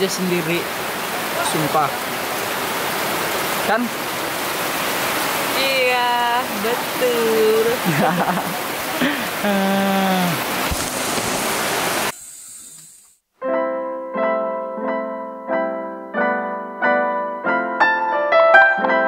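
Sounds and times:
heavy rain: 0.0s - 12.1s
piano music: 13.4s - 19.0s.

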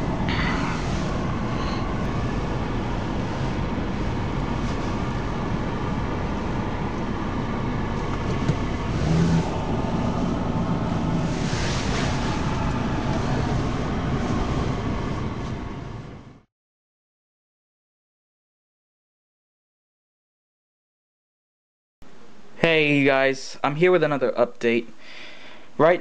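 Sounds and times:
tyres on wet road: 0.0s - 16.4s
car engine hum: 0.0s - 16.5s.

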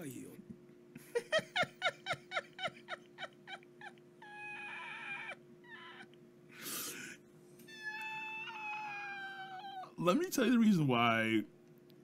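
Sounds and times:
man's high-pitched laughter: 1.0s - 5.4s.

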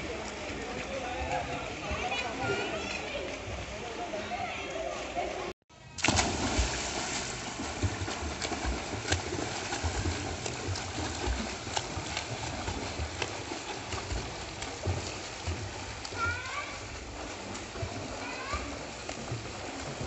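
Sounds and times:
swimming splashes: 0.0s - 20.0s
churned water wash: 6.0s - 20.0s.

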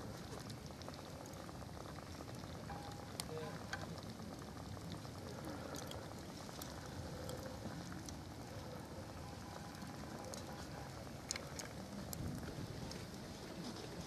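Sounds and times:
fire hissing and crackling: 0.0s - 14.0s.

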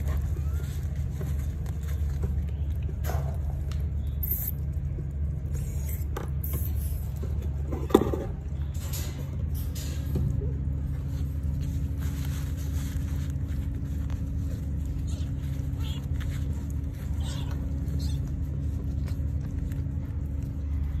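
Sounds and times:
hand rustling over kittens: 0.0s - 21.0s
steady low hum: 0.0s - 21.0s.

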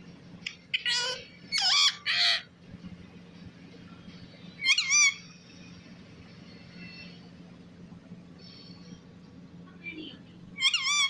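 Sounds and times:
parakeet making shrill calls: 0.7s - 2.5s, 4.6s - 5.3s, 10.6s - 11.0s.

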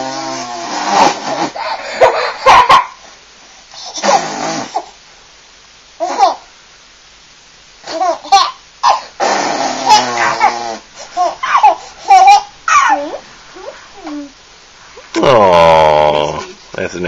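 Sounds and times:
baby blowing raspberries: 0.0s - 2.0s, 3.8s - 5.0s, 8.9s - 12.3s
baby laughing and babbling: 6.0s - 6.5s, 7.8s - 9.1s, 9.7s - 14.4s.

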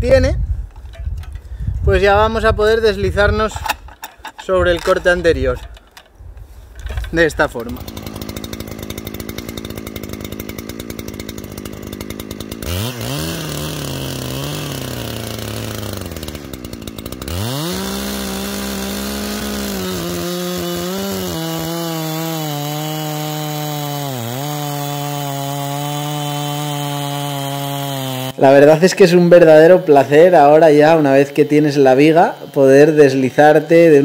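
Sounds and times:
chainsaw cutting a log: 7.2s - 34.0s.

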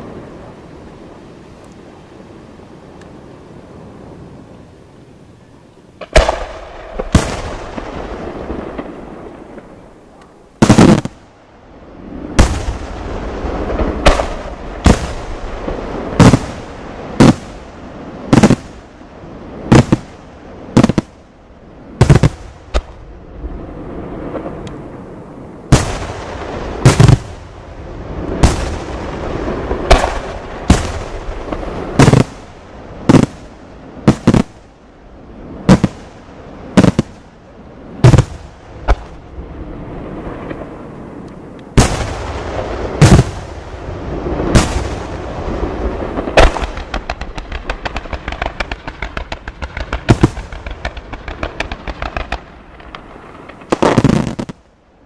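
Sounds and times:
fireworks shells bursting: 46.2s - 54.6s.

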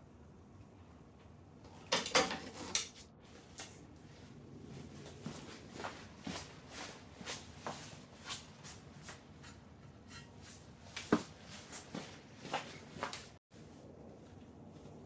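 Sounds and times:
footsteps on concrete floor: 5.0s - 9.6s, 10.2s - 13.4s.

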